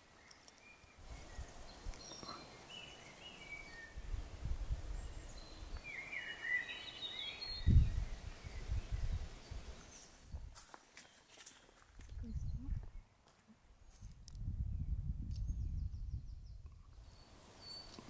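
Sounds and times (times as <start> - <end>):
songbirds chirping: 0.0 - 18.0
low rumbles on microphone: 7.6 - 9.7, 12.1 - 13.0, 14.1 - 16.9.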